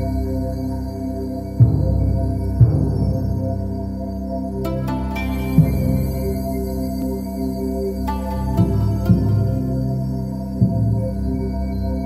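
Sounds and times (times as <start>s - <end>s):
new-age music with sustained tones: 0.0s - 12.0s
soft low beat: 1.6s - 3.5s, 4.7s - 7.2s, 8.3s - 11.3s.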